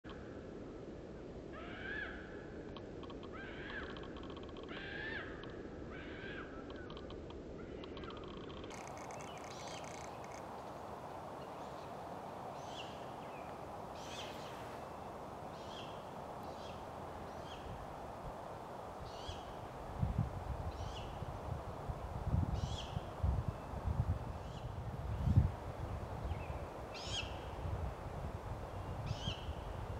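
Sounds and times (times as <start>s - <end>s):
background hiss: 0.1s - 29.9s
owl nestlings calling: 8.7s - 10.6s.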